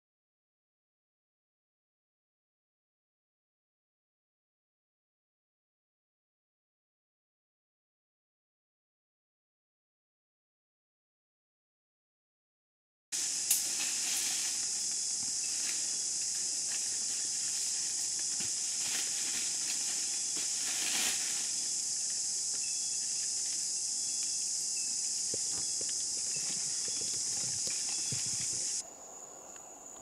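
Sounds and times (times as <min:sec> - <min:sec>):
insects chorus: 0:13.2 - 0:30.0
faint clicks and chirps: 0:25.3 - 0:28.8.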